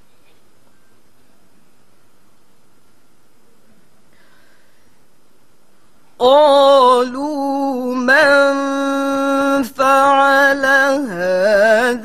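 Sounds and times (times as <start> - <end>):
woman reciting melodically: 6.2 - 12.0.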